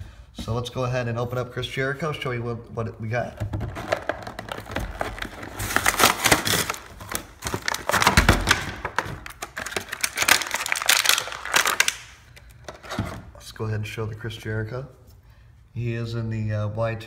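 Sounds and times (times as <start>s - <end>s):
plastic packaging crinkling: 3.6s - 13.0s.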